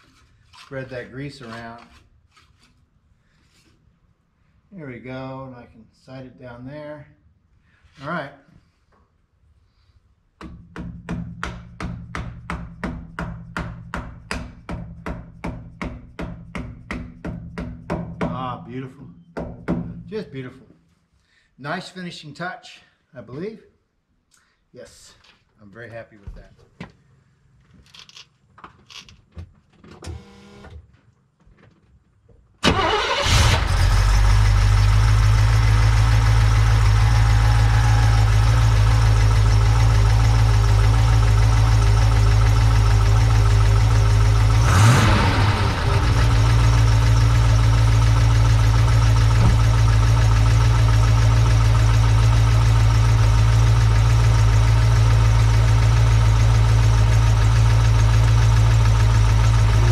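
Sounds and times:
car engine starting and idling: 0:32.6 - 0:59.9.

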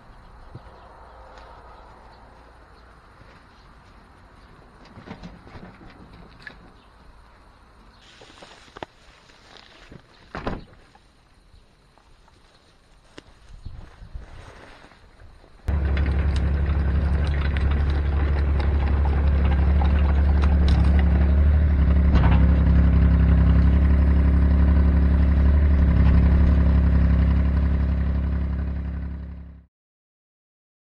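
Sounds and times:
clanks and rattles: 0:04.8 - 0:07.0, 0:15.7 - 0:24.6
excavator diesel engine running: 0:15.7 - 0:29.6.

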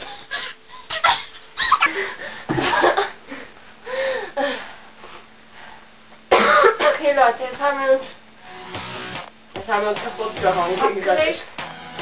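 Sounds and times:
young women laughing and squealing: 0:00.1 - 0:02.0
breathy gasps: 0:03.3 - 0:04.9.

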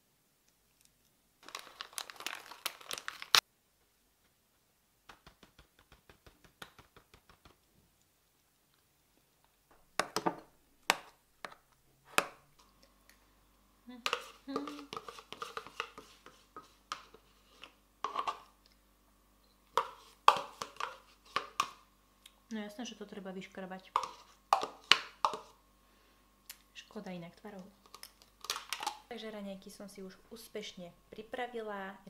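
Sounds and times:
low steady hum: 0:06.2 - 0:32.0
spoon scraping plastic tub: 0:14.0 - 0:18.5, 0:19.7 - 0:21.8, 0:23.9 - 0:25.6.

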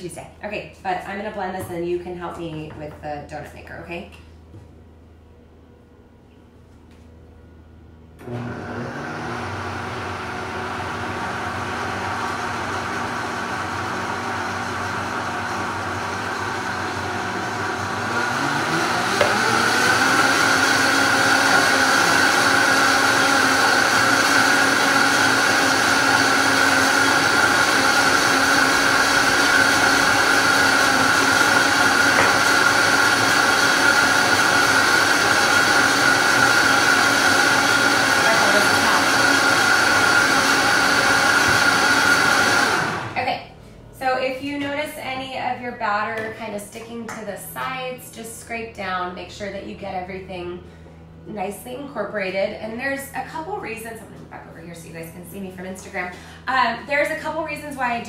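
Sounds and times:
blender motor running: 0:08.2 - 0:43.3.

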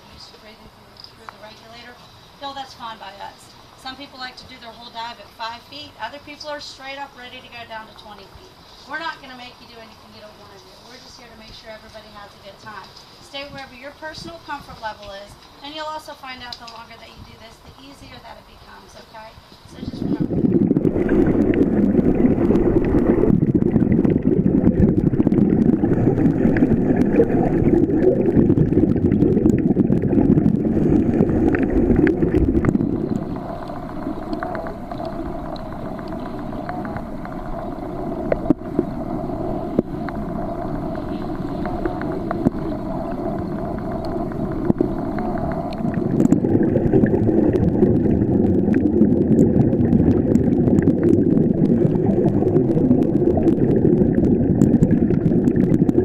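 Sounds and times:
underwater regulator bubbling: 0:19.7 - 0:56.0.

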